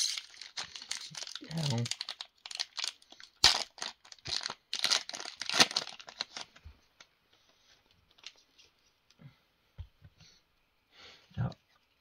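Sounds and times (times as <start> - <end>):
plastic wrapper crinkling and tearing: 0.0 - 6.6.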